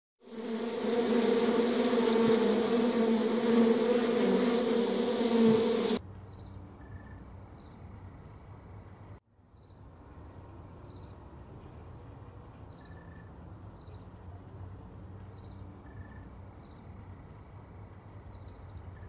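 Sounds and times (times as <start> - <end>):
honeybees buzzing: 0.2 - 6.0.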